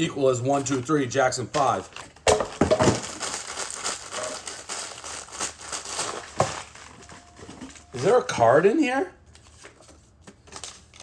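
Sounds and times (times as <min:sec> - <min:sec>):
tissue paper crinkling: 0:03.0 - 0:07.9.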